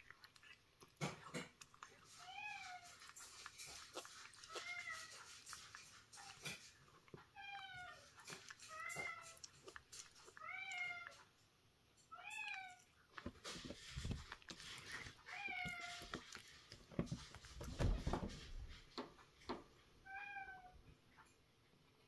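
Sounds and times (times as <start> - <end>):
cat meowing: 4.4 - 5.2, 7.3 - 9.4, 10.4 - 11.2, 12.1 - 12.9, 15.3 - 16.1, 20.0 - 20.8.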